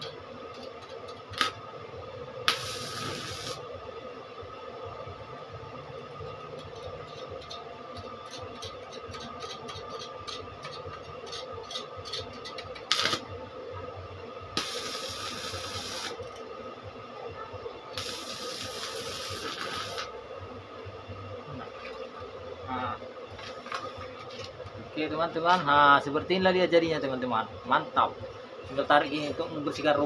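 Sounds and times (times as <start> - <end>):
welding arc crackling and hissing: 0.0 - 3.7, 6.2 - 13.8, 14.4 - 16.5, 17.9 - 20.3
steady hum: 0.0 - 30.0
welding arc loud pop: 2.4 - 3.6, 12.9 - 13.2, 14.6 - 16.2.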